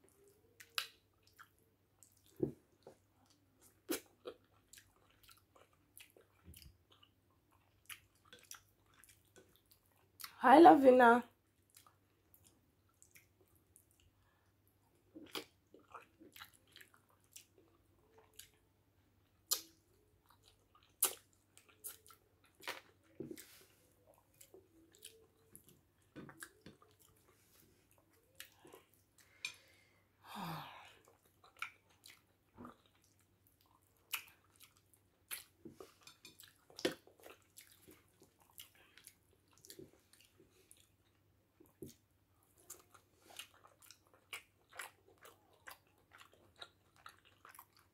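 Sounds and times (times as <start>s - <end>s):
chewing and wet mouth noises: 0.0s - 10.4s, 11.3s - 30.0s, 30.9s - 47.9s
sharp mouth smacks and clicks: 19.5s - 19.8s.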